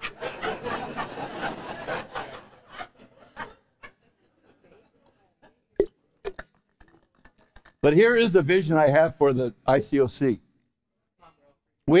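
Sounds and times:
congregation chuckling and murmuring: 0.0s - 5.7s.

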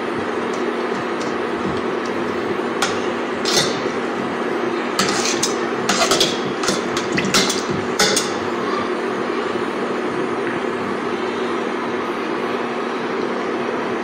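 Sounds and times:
steady background hum: 0.0s - 14.0s
metal spoon scraping a saucepan: 2.8s - 4.0s, 5.0s - 8.5s.

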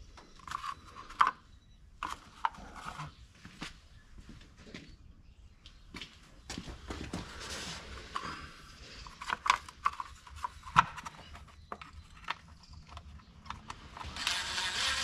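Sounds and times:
cordless power tool running: 13.7s - 15.0s.

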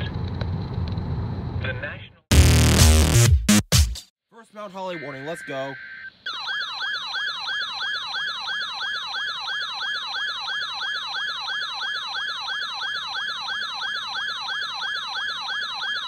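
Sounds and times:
siren-like electronic alert tone: 4.8s - 16.0s.

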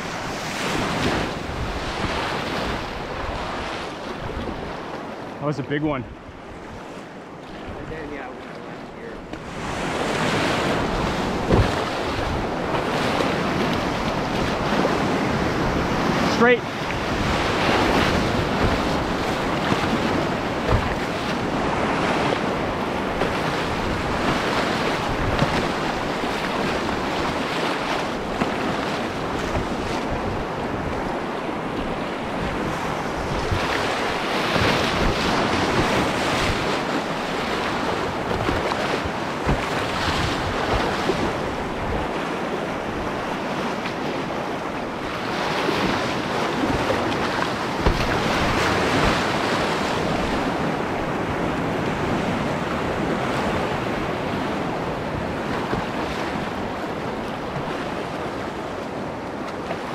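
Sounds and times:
wind buffeting microphone: 0.0s - 5.1s, 9.0s - 59.5s
whitewater rushing: 8.9s - 51.2s
low thumps: 11.0s - 12.4s.

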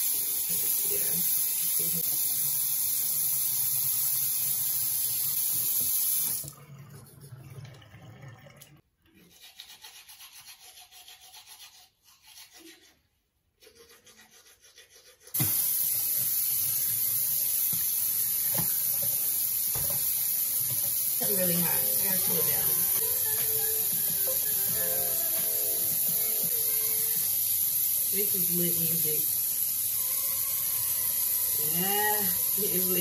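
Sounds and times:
toothbrush scrubbing teeth: 9.1s - 15.5s, 21.2s - 27.4s, 29.9s - 33.0s
tap running into sink: 17.6s - 21.0s.

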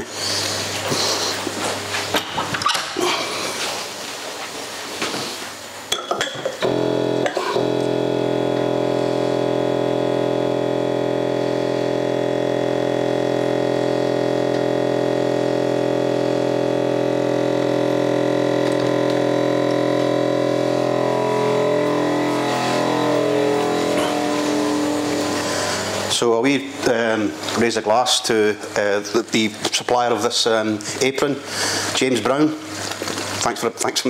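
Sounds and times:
synth music: 16.3s - 26.3s.

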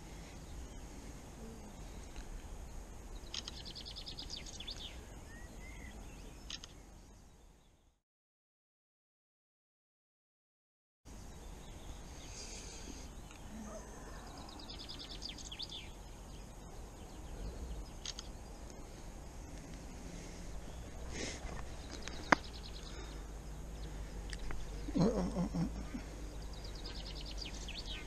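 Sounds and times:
songbirds chirping: 0.0s - 8.0s, 11.1s - 28.0s
sharp click: 3.3s - 3.7s, 6.5s - 6.8s, 18.0s - 18.3s.

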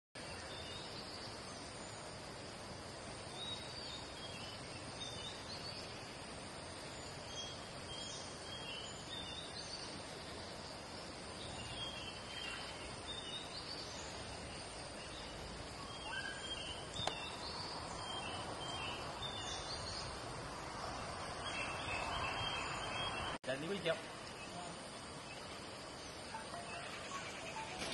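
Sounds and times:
steady outdoor hiss: 0.2s - 27.9s
small birds chirping: 3.1s - 27.9s.

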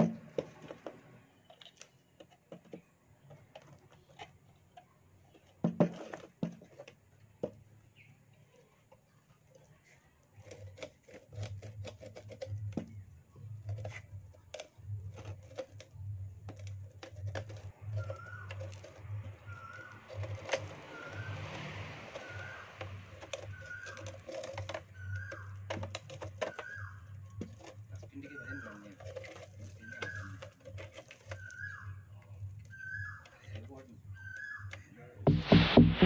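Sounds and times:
metal lantern clinking and rattling: 13.6s - 31.8s.

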